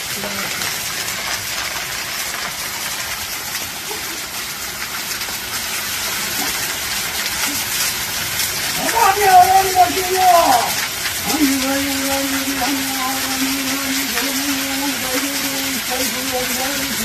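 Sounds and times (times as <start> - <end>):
waterfall splashing onto rocks: 0.0 - 17.0.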